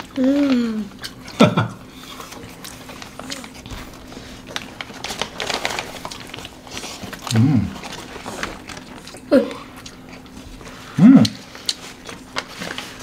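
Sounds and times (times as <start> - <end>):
paper wrapper crinkling: 2.2 - 13.0
mouth chewing: 11.2 - 12.1.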